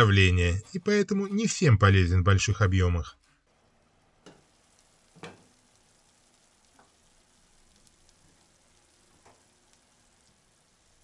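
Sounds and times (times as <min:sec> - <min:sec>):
sauce simmering in a pan: 0:03.3 - 0:11.0.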